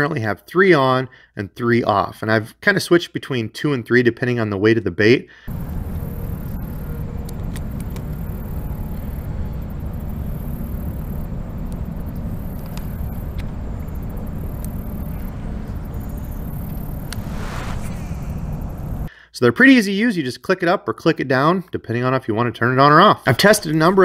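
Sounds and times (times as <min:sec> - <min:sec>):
faint clicks: 0:05.5 - 0:09.2, 0:09.9 - 0:17.2
wind buffeting microphone: 0:05.5 - 0:19.1.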